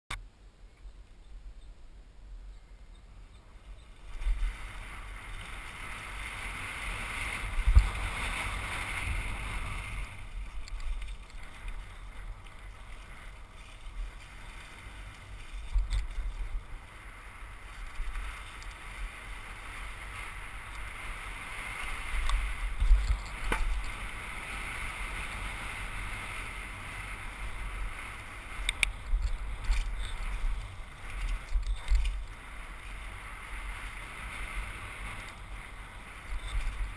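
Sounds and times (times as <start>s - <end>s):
wind rushing over microphone: 0.8s - 36.9s
tyres rolling on dirt: 3.6s - 36.9s
bike thumps and rattles: 22.8s - 24.0s.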